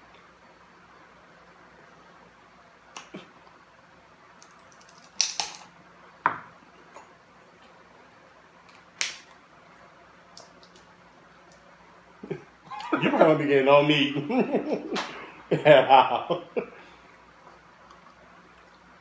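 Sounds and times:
crab shells cracking: 4.4s - 5.8s.

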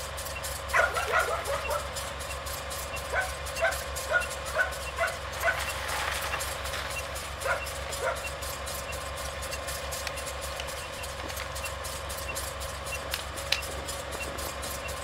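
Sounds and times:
faint crackling clicks: 9.5s - 11.6s.

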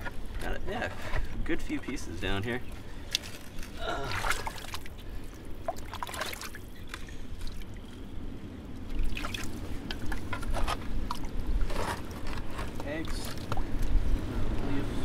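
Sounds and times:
muddy water sloshing and splashing: 2.6s - 8.1s, 8.7s - 13.9s.

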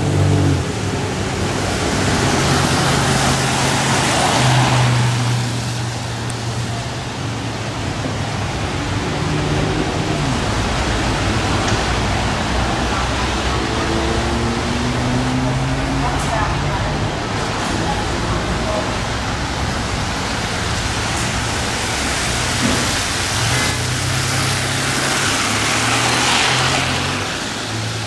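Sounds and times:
tyres hissing through water: 17.3s - 28.0s.

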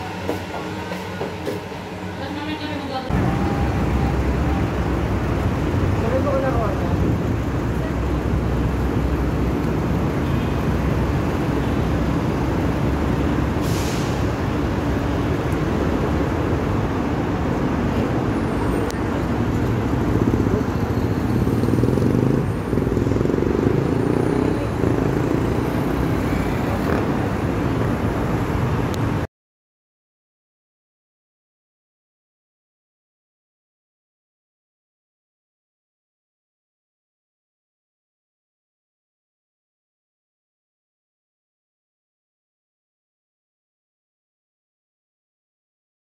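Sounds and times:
vehicle engines rumbling: 0.0s - 29.3s
brief hiss: 13.6s - 14.3s.

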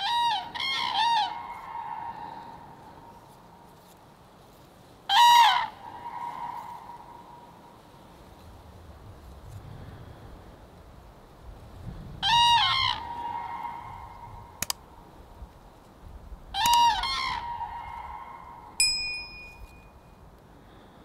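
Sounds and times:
cranes trumpeting calls: 0.0s - 3.7s, 5.1s - 7.7s, 12.2s - 14.8s, 16.5s - 18.8s
bell ding: 18.8s - 20.2s.

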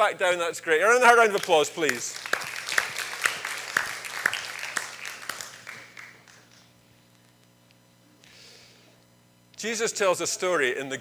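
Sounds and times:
congregation applauding: 1.1s - 6.7s.

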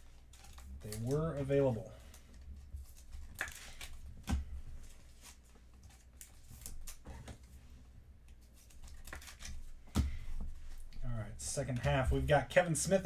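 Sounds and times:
cards clicking and rustling: 0.0s - 7.6s, 8.2s - 11.0s.

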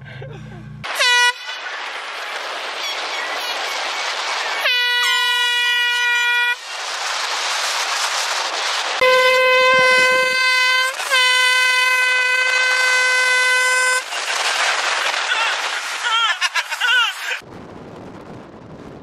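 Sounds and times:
air horn blasts: 0.8s - 1.5s, 4.6s - 6.6s, 9.0s - 14.0s
wind and road noise: 14.0s - 19.0s.

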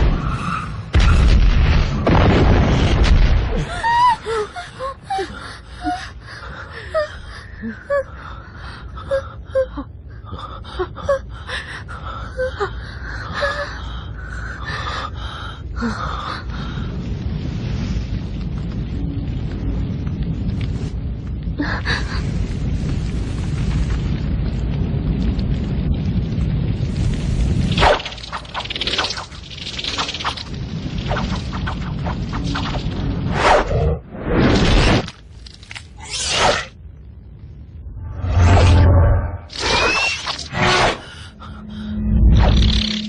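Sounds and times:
boom: 0.0s - 3.7s
low rumble of fire: 0.0s - 43.0s.

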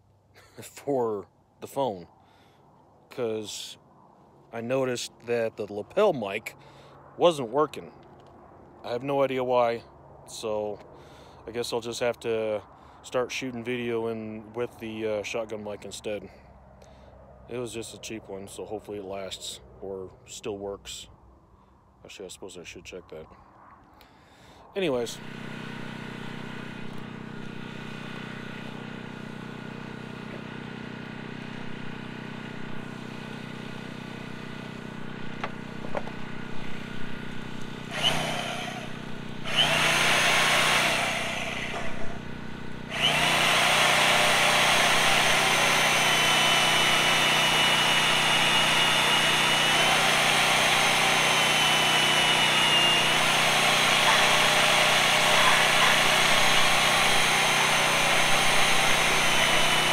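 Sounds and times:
band saw cutting steel: 37.8s - 59.9s
high whine of saw blade: 37.8s - 59.9s.

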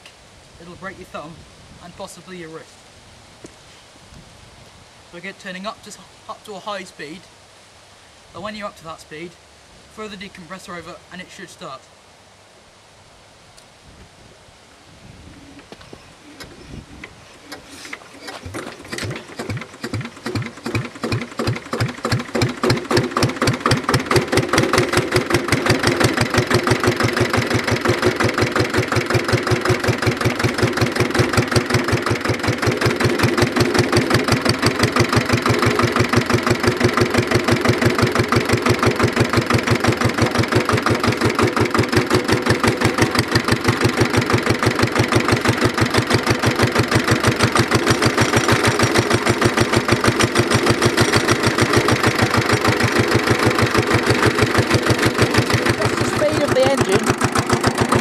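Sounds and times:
single-cylinder diesel engine running: 18.3s - 58.0s.

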